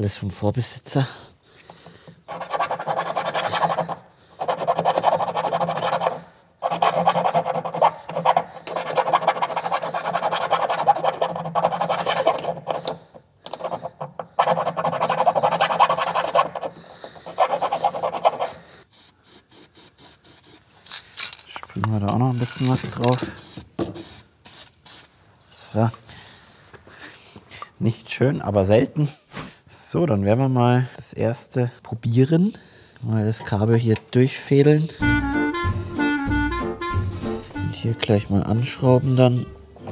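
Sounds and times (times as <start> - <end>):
screwdriver scraping rust-proofing: 1.6 - 18.6, 20.3 - 23.7.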